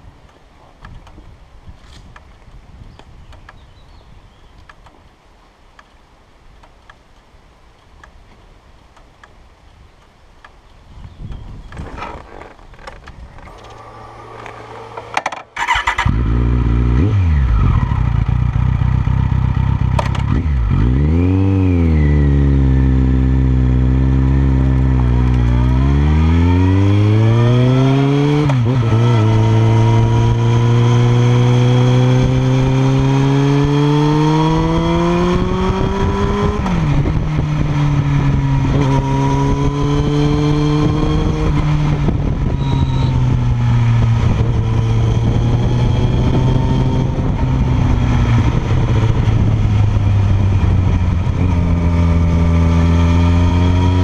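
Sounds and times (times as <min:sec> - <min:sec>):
motorcycle exhaust revving: 0:13.5 - 0:54.0.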